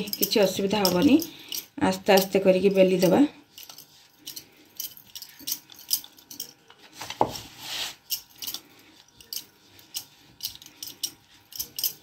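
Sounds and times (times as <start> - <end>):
rolling pin rolling dough: 0.0 - 1.2, 6.7 - 12.0
bangles clinking: 0.0 - 12.0.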